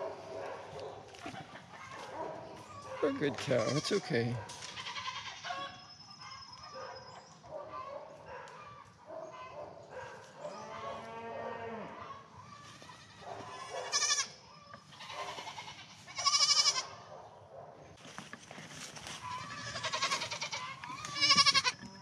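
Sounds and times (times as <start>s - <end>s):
young goats bleating: 3.0s - 5.8s, 10.7s - 17.0s, 19.1s - 22.0s.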